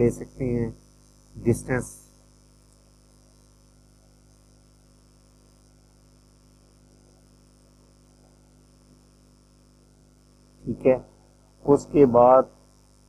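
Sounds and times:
recording hiss: 0.0s - 2.8s, 10.6s - 12.6s
faint mains hum: 0.0s - 13.0s.

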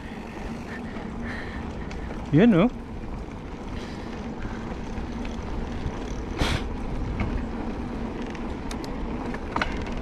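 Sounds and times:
mountain bike rolling on trail: 0.0s - 10.0s.

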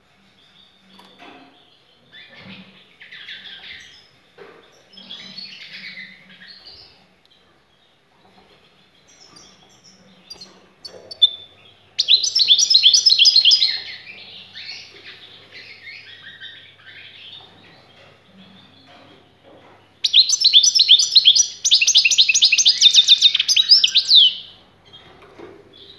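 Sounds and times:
goldfinch chirping and twittering: 8.6s - 19.3s, 20.0s - 25.1s.

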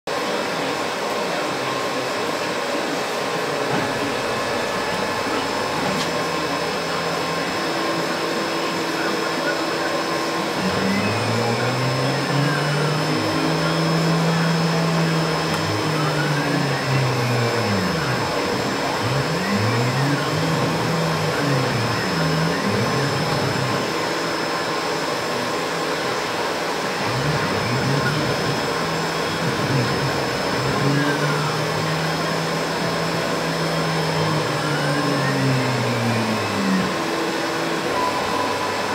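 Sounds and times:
drive motors humming: 2.8s - 38.9s
router cutting plastic: 9.6s - 25.0s, 26.8s - 37.9s.

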